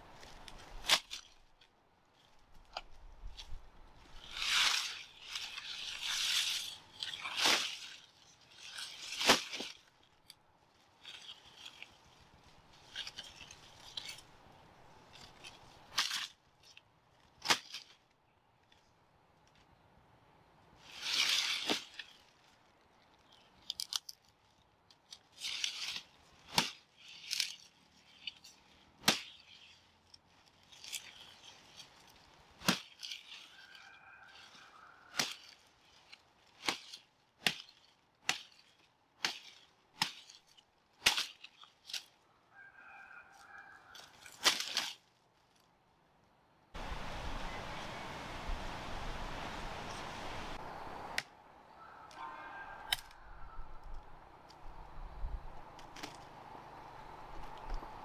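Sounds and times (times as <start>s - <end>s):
dry leaves rustling: 0.0s - 19.6s, 20.7s - 45.9s, 46.8s - 58.0s
stalks snapping: 0.2s - 1.7s, 15.2s - 18.0s, 23.2s - 29.7s, 30.6s - 33.8s, 34.4s - 42.2s, 44.0s - 45.0s, 51.1s - 51.4s, 52.8s - 53.2s, 55.6s - 56.4s.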